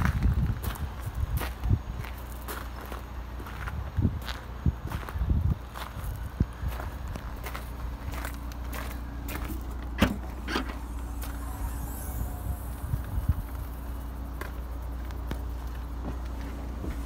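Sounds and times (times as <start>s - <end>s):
steady low rumble: 0.0s - 17.0s
car tailgate clicks: 10.0s - 10.9s.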